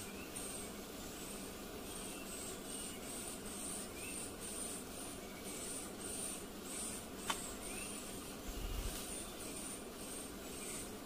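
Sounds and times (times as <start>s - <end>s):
forest ambience hiss: 0.0s - 11.0s.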